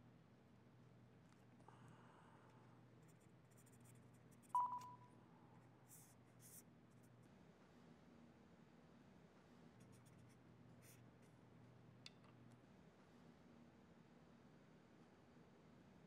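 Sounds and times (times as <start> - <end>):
pen scratching on screen: 3.0 - 5.0
short electronic beep: 4.6 - 5.1.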